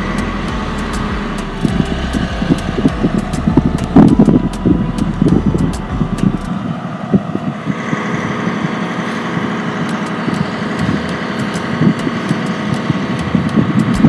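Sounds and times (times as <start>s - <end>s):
motor humming: 0.0s - 14.0s.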